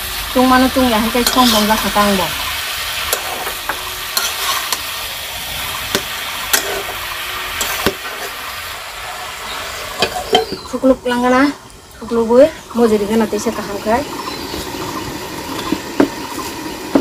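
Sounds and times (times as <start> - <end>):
food sizzling in a pan: 0.0 - 17.0
utensil scraping a pan: 1.2 - 1.8, 3.0 - 4.9, 5.6 - 10.7.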